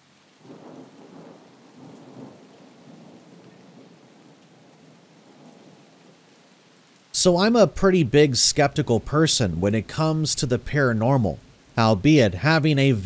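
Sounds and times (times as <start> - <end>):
steady rain: 0.0 - 13.0
low roll of thunder: 0.4 - 6.2.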